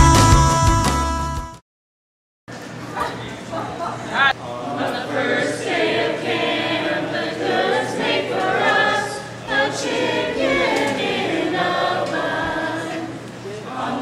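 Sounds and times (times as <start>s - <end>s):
group singing without instruments: 4.5s - 14.0s.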